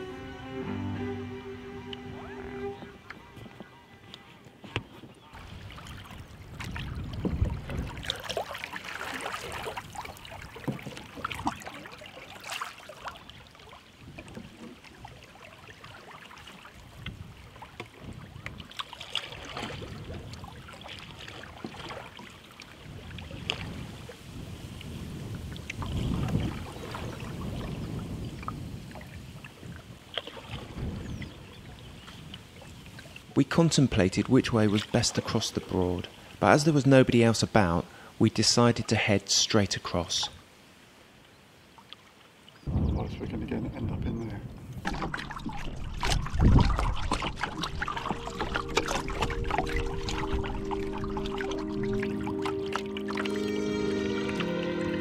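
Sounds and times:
paddles pulling through water: 0:00.0 - 0:42.7, 0:44.5 - 0:55.0
wind on microphone: 0:01.8 - 0:08.4, 0:16.8 - 0:18.8, 0:19.4 - 0:21.2, 0:22.8 - 0:33.2, 0:42.7 - 0:52.0
water lapping at hull: 0:01.9 - 0:53.5
small splashes and drips: 0:05.3 - 0:27.7, 0:28.3 - 0:33.4, 0:44.8 - 0:53.3.

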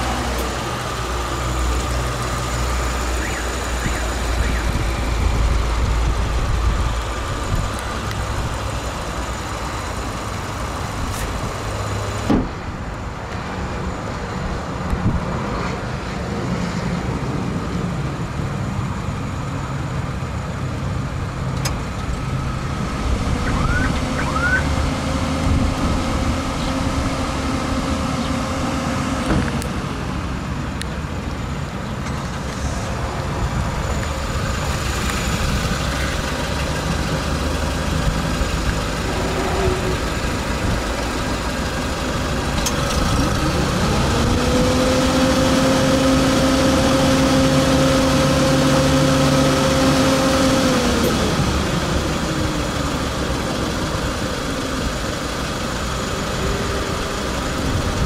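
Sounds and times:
car engine idling: 0:00.0 - 0:15.0, 0:18.2 - 0:44.4, 0:45.2 - 0:58.0
car bonnet thump shut: 0:12.3 - 0:12.6.

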